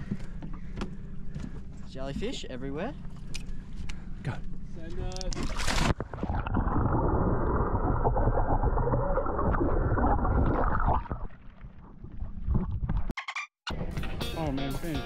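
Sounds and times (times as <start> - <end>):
muffled underwater water rushing: 5.3 - 13.1.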